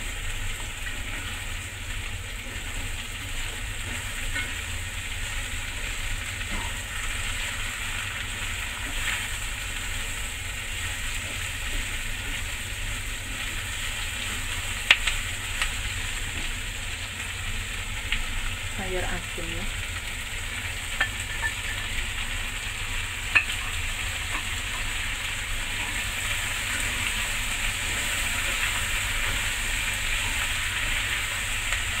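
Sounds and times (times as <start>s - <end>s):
vegetables sizzling in a pan: 0.0s - 32.0s
chopsticks clicking against pan: 14.8s - 15.7s, 23.3s - 23.6s.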